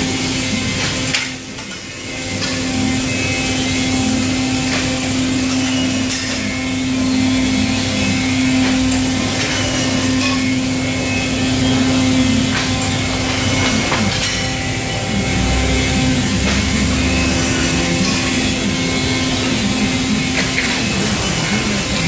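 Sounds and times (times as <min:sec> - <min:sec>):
factory machinery drone: 0:00.0 - 0:22.0.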